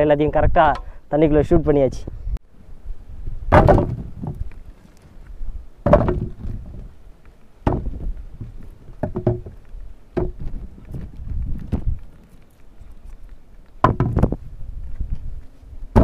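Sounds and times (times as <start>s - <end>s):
wind rumble on microphone: 0.0s - 7.0s, 7.6s - 16.0s.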